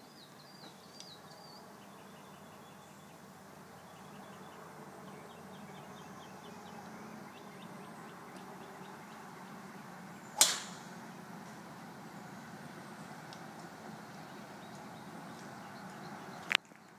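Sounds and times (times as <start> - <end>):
golf club striking ball: 10.4 - 11.1.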